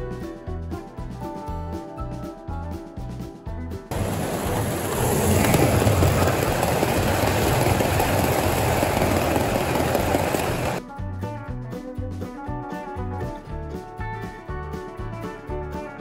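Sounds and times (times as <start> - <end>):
background music: 0.0 - 16.0
toy train rattling on track: 3.9 - 10.8.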